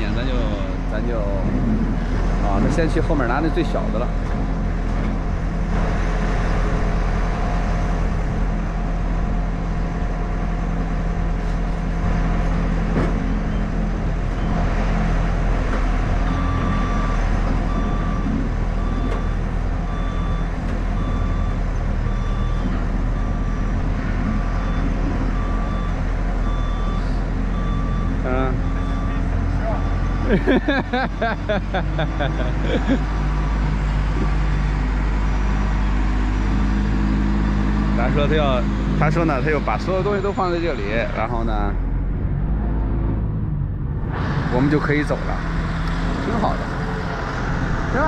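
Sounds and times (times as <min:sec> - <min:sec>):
diesel engine running: 0:00.0 - 0:48.0
reversing alarm beeping: 0:16.2 - 0:33.0.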